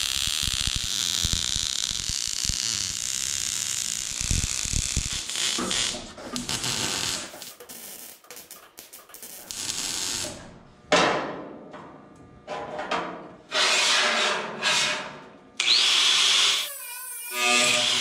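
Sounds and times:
welder crackle: 0.0s - 10.5s
angle grinder cutting steel: 15.6s - 18.0s.

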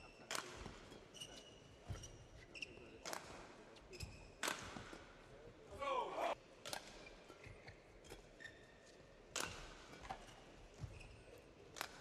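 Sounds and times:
shoe squeaks on court: 0.0s - 3.1s, 3.8s - 4.5s, 8.4s - 9.0s, 10.0s - 11.5s
racket hitting shuttlecock: 0.3s - 0.8s, 4.4s - 5.0s, 6.6s - 7.4s, 9.3s - 10.4s, 11.7s - 12.0s.

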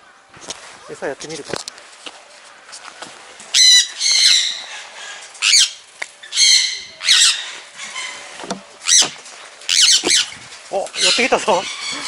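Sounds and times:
parrots squawking: 3.5s - 12.0s.

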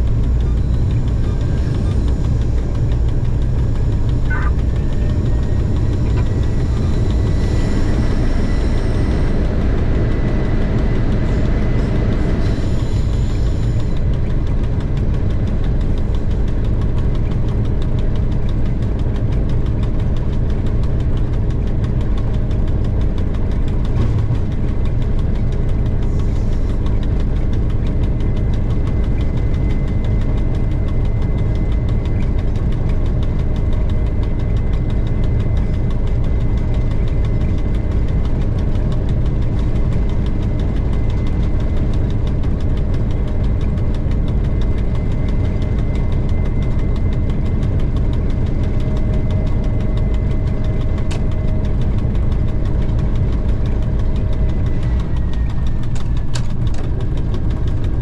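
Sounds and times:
faint high whine: 0.0s - 17.0s
diesel engine rumbling: 0.0s - 58.0s.

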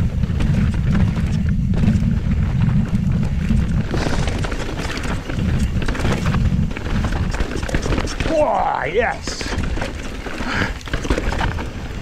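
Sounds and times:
bike rattling over rocks: 0.0s - 12.0s
wind rumble on microphone: 0.0s - 12.0s.

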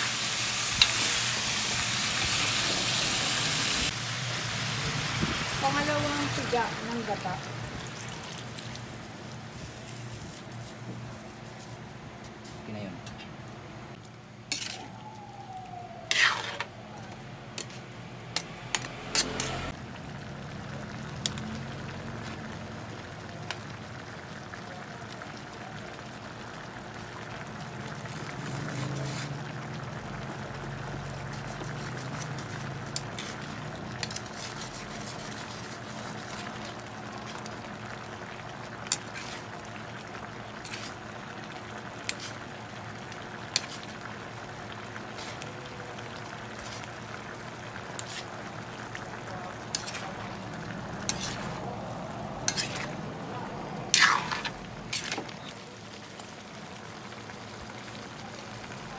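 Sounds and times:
steady sizzle: 0.0s - 12.0s, 13.9s - 58.9s
spatula stirring in a wok: 14.5s - 14.9s, 16.1s - 16.7s, 31.2s - 37.4s, 38.8s - 39.5s, 40.6s - 41.0s, 42.0s - 42.5s, 43.5s - 43.9s, 47.8s - 53.1s, 53.9s - 55.5s.

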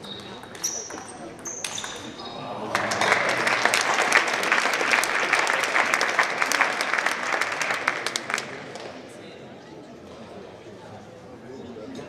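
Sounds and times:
audience applauding: 2.6s - 9.0s.

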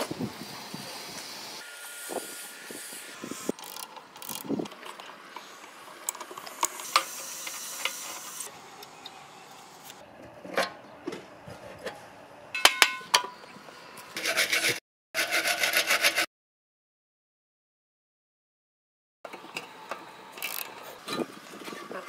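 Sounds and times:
hand tool clicks and knocks: 12.6s - 13.4s
ringing metallic clinks: 12.6s - 13.4s
rasping saw strokes: 14.2s - 16.3s.

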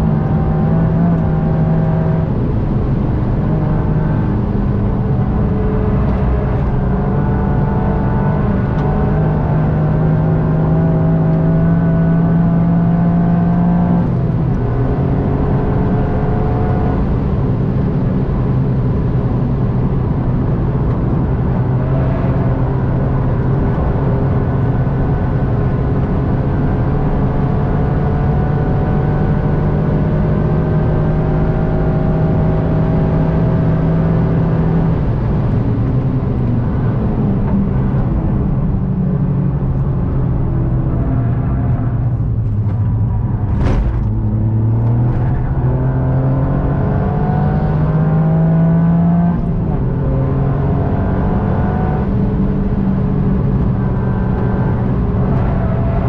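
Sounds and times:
car engine pulling under load: 39.7s - 46.7s.

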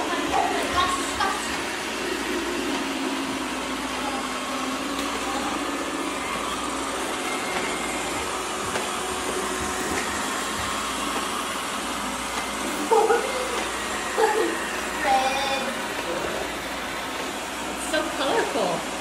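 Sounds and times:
robot vacuums whirring: 0.0s - 19.0s.

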